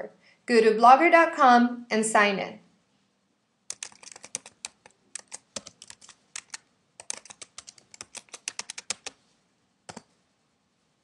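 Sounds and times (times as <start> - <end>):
typing on computer keyboard: 3.7 - 9.2, 9.9 - 10.1.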